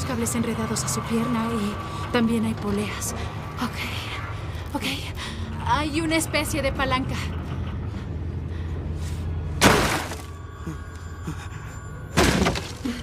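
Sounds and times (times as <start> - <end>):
low steady drone: 0.0 - 13.0
wooden boards smashing: 9.6 - 10.3, 12.2 - 13.0.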